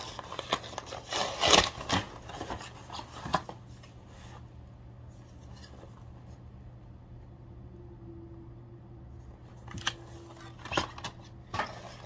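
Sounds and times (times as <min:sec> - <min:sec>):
package rustling and rasping: 0:00.0 - 0:03.9.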